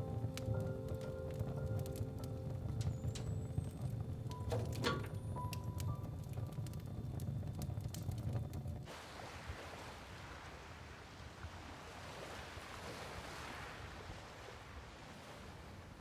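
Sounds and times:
music: 0.0s - 8.7s
sea waves washing onto sand: 8.9s - 16.0s.

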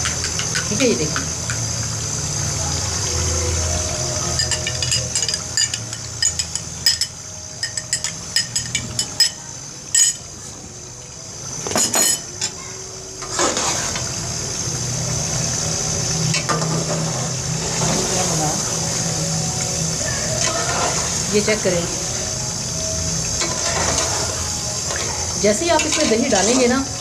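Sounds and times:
metal spoon clinking against cup: 4.4s - 9.4s, 10.0s - 10.2s, 11.7s - 12.3s.

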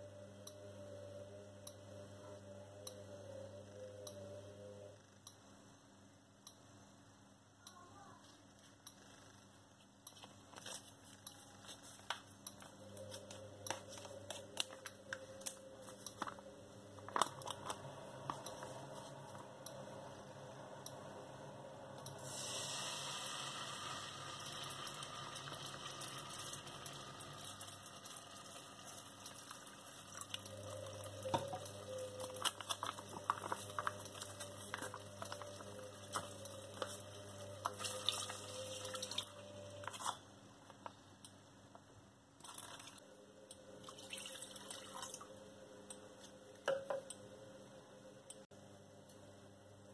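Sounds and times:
steady hiss: 22.0s - 31.8s
plastic pouch crinkling: 32.2s - 39.2s.

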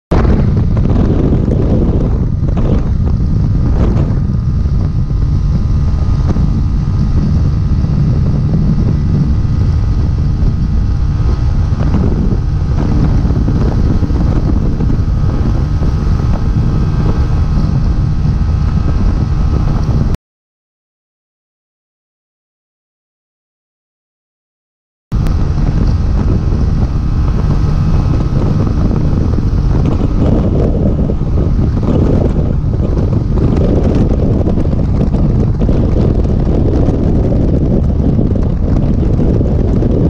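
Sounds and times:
motorcycle engine drone: 0.1s - 20.2s, 25.1s - 40.0s
wind buffeting microphone: 0.1s - 20.2s, 25.1s - 40.0s.

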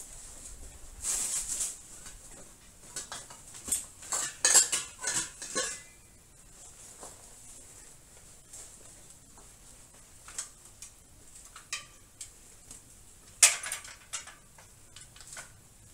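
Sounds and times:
metallic clinking and rattling: 3.0s - 6.0s, 13.3s - 15.6s.

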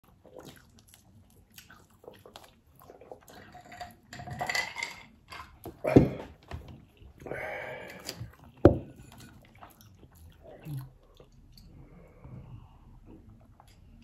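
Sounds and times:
chewing: 0.0s - 4.2s, 5.4s - 14.0s
cutlery and dishes clinking: 3.4s - 5.8s, 8.7s - 9.5s.

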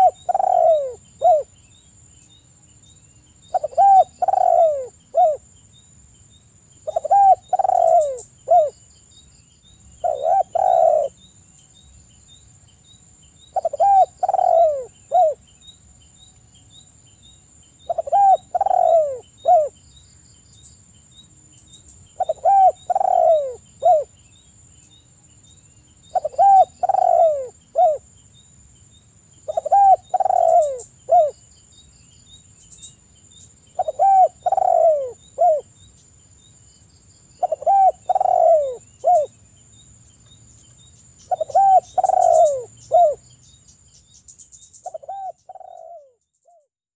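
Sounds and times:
dove cooing: 0.0s - 1.5s, 3.5s - 5.4s, 6.8s - 8.8s, 10.0s - 11.2s, 13.5s - 15.4s, 17.8s - 19.8s, 22.2s - 24.1s, 26.1s - 28.0s, 29.5s - 31.4s, 33.8s - 35.7s, 37.4s - 39.3s, 41.3s - 43.2s, 44.8s - 46.6s.

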